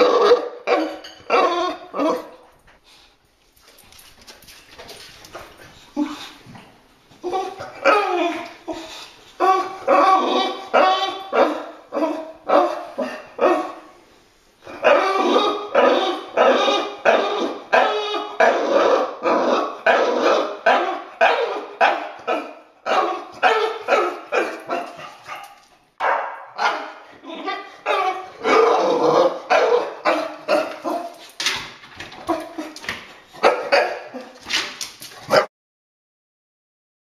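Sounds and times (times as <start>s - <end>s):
dog whining barks: 0.0s - 2.4s, 7.2s - 13.9s, 14.7s - 31.3s, 32.2s - 34.5s, 35.2s - 35.5s.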